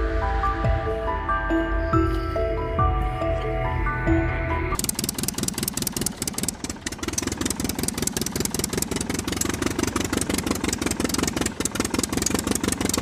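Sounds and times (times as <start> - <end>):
tractor engine chugging: 4.8 - 13.0.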